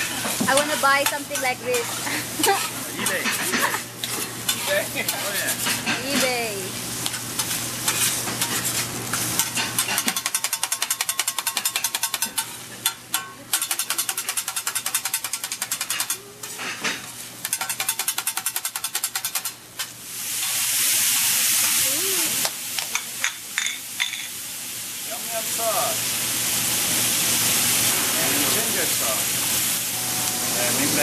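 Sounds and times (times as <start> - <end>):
vegetables sizzling on griddle: 0.0 - 31.0
spatula clattering on griddle: 0.1 - 6.3, 7.0 - 20.6.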